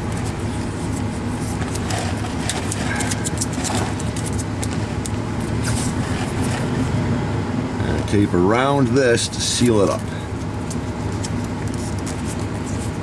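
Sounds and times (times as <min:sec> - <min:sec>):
tape pulled off roll crackling: 0:00.0 - 0:06.8
low mechanical hum: 0:00.0 - 0:13.0.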